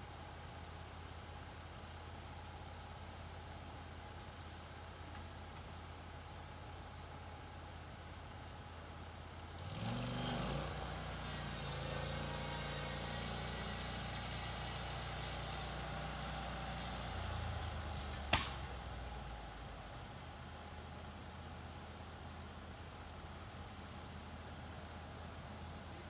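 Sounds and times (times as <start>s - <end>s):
sawmill engine revving: 9.6s - 18.4s.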